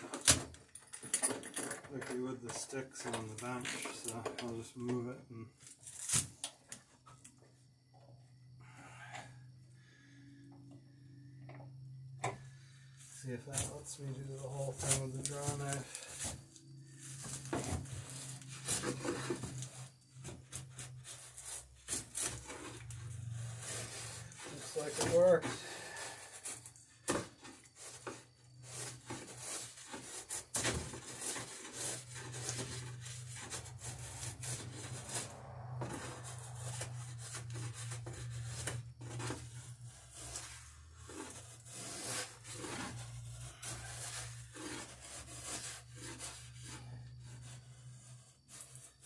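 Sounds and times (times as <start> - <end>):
drawknife scraping wood: 17.0 - 49.0.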